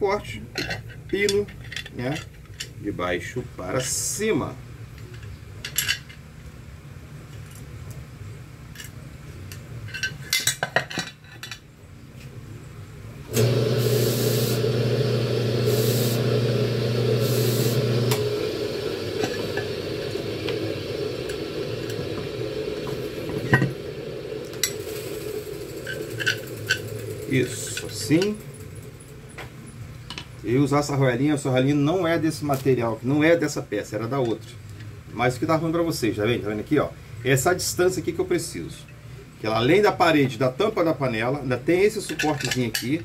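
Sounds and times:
steady low hum: 12.4 - 31.2.

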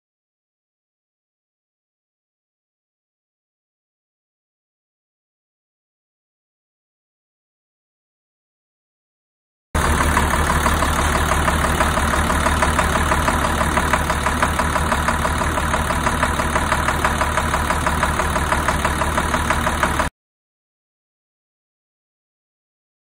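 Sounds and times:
diesel engine knocking: 9.8 - 20.1.

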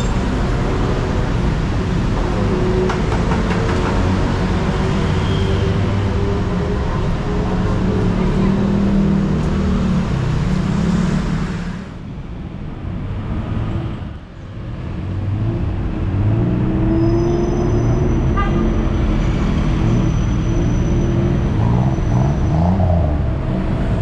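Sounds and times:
passing cars and motorbikes: 0.0 - 24.0
steady road noise: 0.0 - 24.0.

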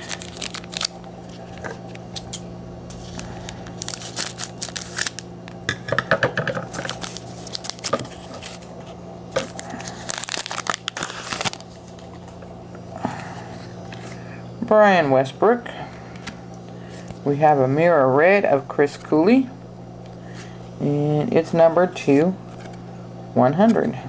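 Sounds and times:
foil wrapper tearing and crinkling: 0.0 - 5.3, 6.7 - 8.7, 9.4 - 12.1
low steady hum: 0.0 - 24.0.

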